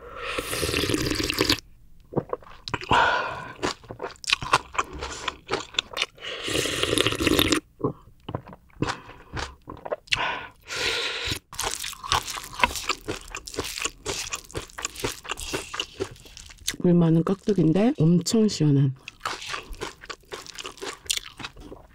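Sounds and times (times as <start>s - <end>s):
crunchy vegetable chewing: 0.4s - 7.6s, 11.3s - 17.8s, 19.0s - 21.9s.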